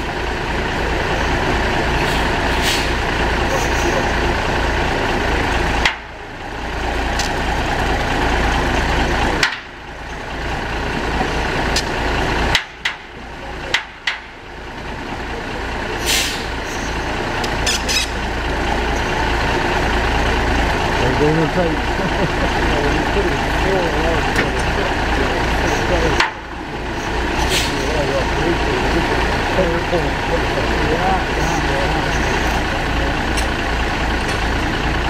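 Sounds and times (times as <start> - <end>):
truck engine running: 0.0 - 35.0
short hiss: 2.1 - 3.0, 16.0 - 16.5.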